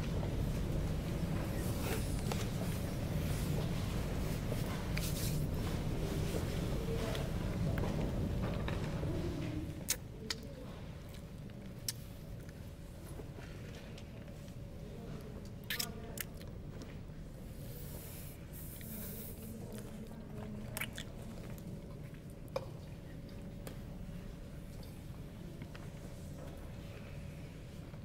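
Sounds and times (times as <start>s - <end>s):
low room hum: 0.0s - 28.0s
wet mouth sounds and lip smacks: 9.9s - 10.5s, 15.4s - 16.5s, 20.7s - 21.6s.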